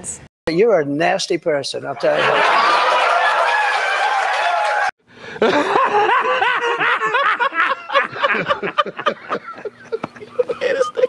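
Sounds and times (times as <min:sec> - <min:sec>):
men laughing hard: 0:02.0 - 0:03.8, 0:05.3 - 0:11.0.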